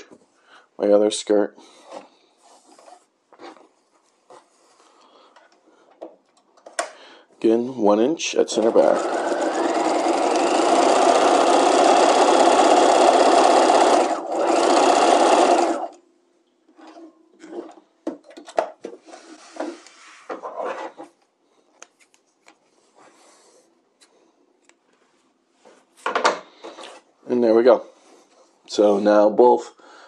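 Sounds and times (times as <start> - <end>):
sewing machine running: 8.6 - 16.0.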